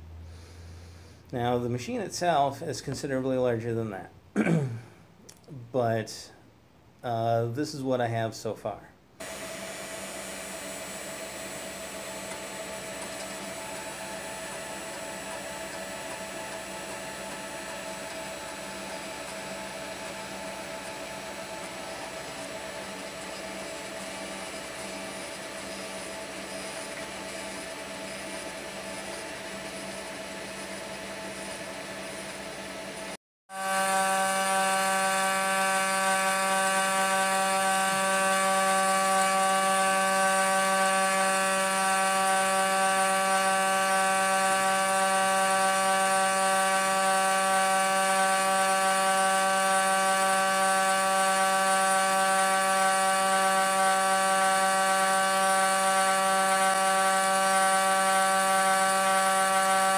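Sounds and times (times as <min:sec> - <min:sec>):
milling spindle whine: 0:09.2 - 0:59.9.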